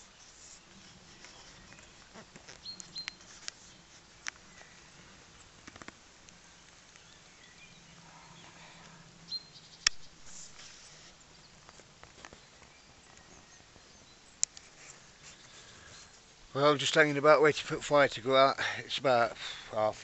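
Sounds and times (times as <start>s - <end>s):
small birds chirping: 0.0s - 20.0s
sharp clicks: 9.8s - 10.1s, 14.4s - 14.7s.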